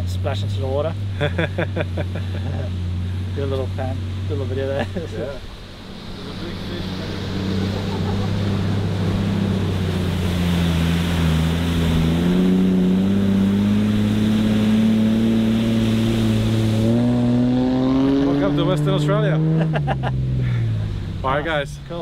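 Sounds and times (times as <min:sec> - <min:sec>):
vehicle engine driving: 0:00.0 - 0:22.0
water sloshing and splashing: 0:03.7 - 0:18.0.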